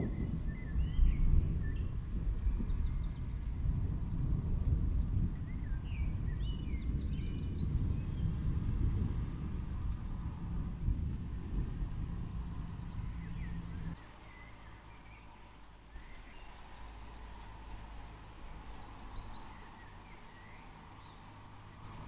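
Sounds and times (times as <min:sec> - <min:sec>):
loud low rumble: 0:00.0 - 0:06.4, 0:07.2 - 0:14.0
songbirds chirping and trilling: 0:00.0 - 0:10.5, 0:11.3 - 0:22.0.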